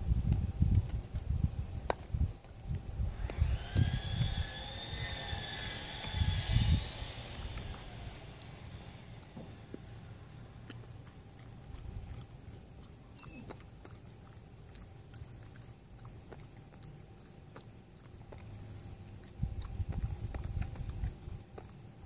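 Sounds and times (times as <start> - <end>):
dog chewing food: 5.8 - 22.0.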